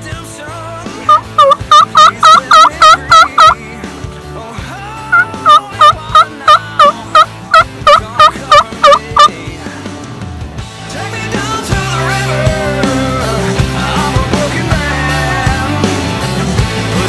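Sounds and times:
faint background music: 0.0 - 17.0
wild turkey yelping: 1.1 - 3.6, 5.1 - 9.3.

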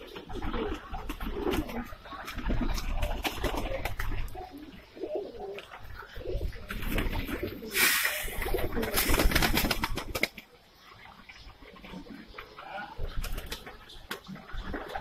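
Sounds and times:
pigeons cooing: 0.0 - 15.0
wings rustling flurry: 6.6 - 10.5.

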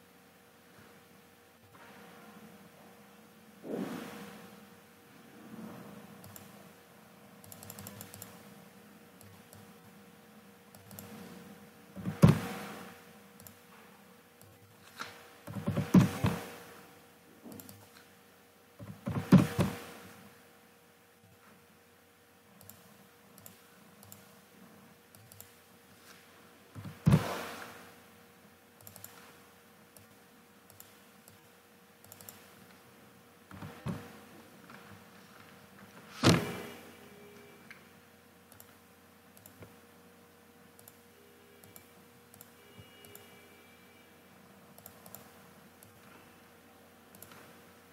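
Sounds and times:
faint steady hum: 0.0 - 47.9
keyboard and mouse clicks: 6.2 - 6.6, 7.4 - 8.5, 9.2 - 9.9, 10.7 - 11.3, 12.0 - 12.8, 14.4 - 16.6, 17.4 - 18.1, 18.8 - 20.0, 22.6 - 24.4, 25.1 - 25.6, 26.7 - 27.6, 28.8 - 32.8, 33.5 - 34.1, 38.5 - 39.8, 40.8 - 41.0, 41.6 - 43.3, 44.7 - 46.1, 47.1 - 47.6.

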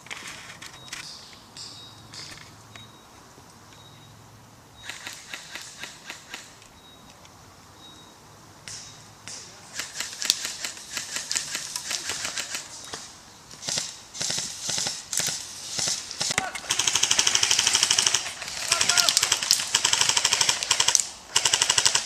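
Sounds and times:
airsoft guns firing: 4.8 - 6.6, 8.7 - 22.0.

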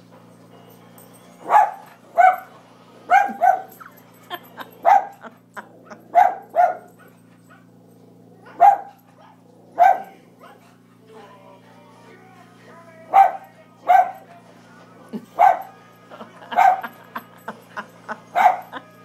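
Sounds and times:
dog barking: 1.5 - 3.9, 4.7 - 7.7, 8.4 - 10.7, 13.1 - 14.3, 15.3 - 15.8, 16.5 - 17.0, 18.3 - 18.8.

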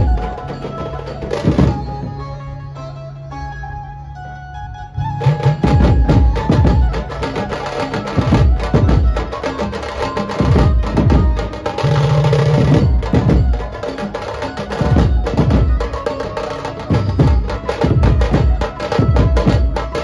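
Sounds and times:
steady melody line: 0.0 - 20.0
bass drums and side drums: 5.1 - 20.0.

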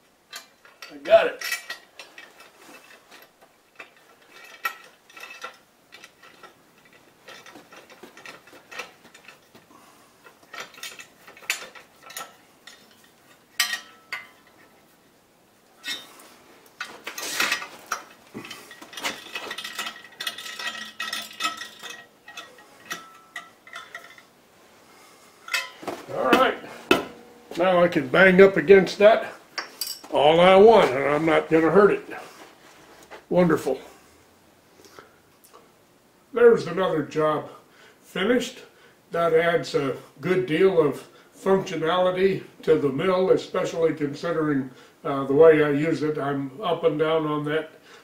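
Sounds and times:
metallic clicks and clinks: 0.3 - 9.6, 10.2 - 14.7, 15.8 - 24.3, 29.6 - 30.1
metal ringing: 10.5 - 14.6, 16.8 - 24.3, 25.4 - 28.8.

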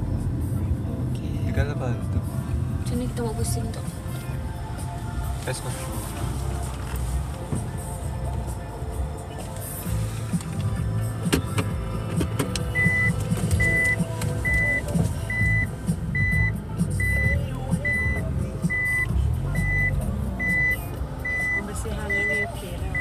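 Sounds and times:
car engine idling: 0.0 - 23.0
reverse warning beeper: 12.8 - 23.0.

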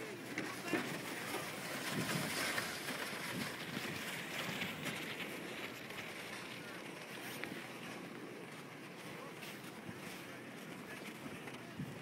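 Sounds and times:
wind rushing on microphone: 1.8 - 5.0
faint distant voices: 6.0 - 12.0.

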